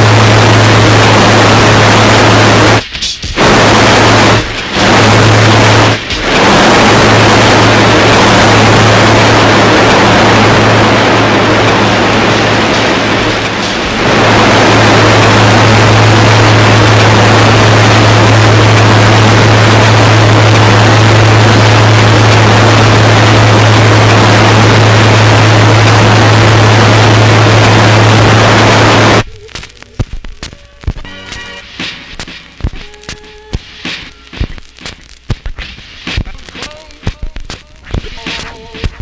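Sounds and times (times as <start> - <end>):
turntable clicks and scratches: 0.0 - 16.6, 29.0 - 39.0
dense wall of hiss: 0.0 - 29.2
steady low hum: 0.0 - 39.0.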